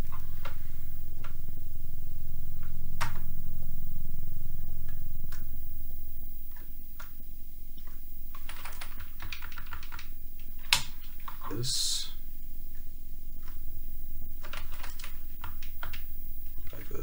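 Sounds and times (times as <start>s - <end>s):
steady low hum: 0.0s - 17.0s
sharp clicks: 6.3s - 17.0s.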